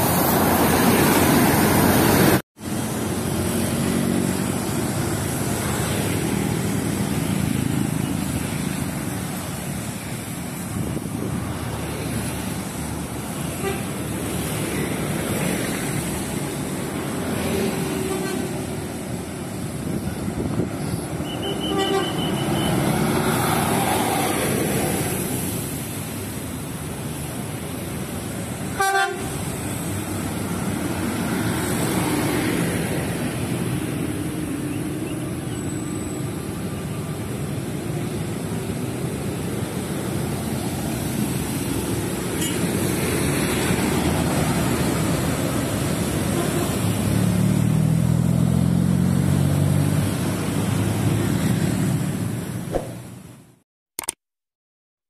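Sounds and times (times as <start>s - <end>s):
road traffic passing: 0.0s - 53.6s
car horn toots: 21.2s - 22.8s.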